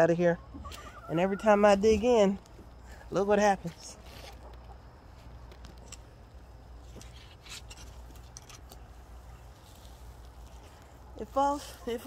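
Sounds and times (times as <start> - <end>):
garden fork digging compost: 6.8 - 12.0.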